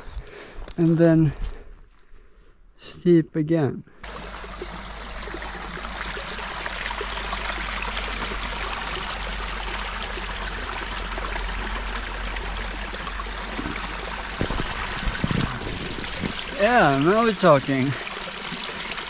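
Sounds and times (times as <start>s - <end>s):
stream running water: 4.0s - 19.0s.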